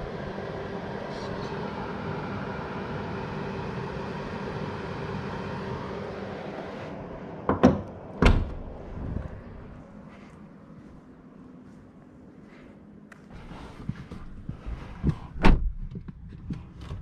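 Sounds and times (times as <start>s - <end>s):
background hum: 0.0s - 17.0s
car bonnet slamming: 7.5s - 8.7s.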